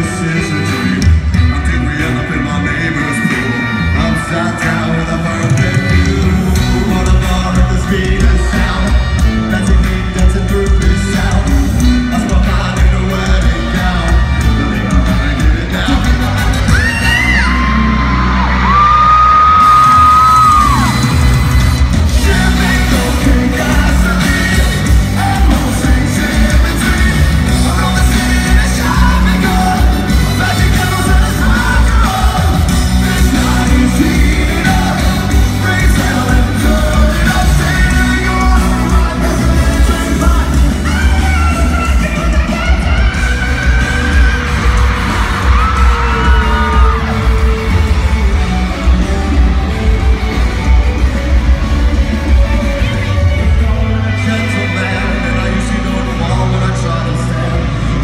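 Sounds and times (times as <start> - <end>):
person singing: 0.0 - 58.0
rock band with horns playing: 0.0 - 58.0.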